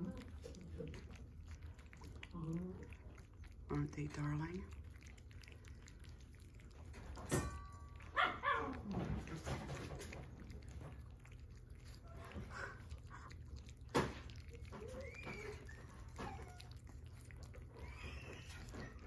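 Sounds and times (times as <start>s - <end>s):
dog barking: 8.1s - 8.9s.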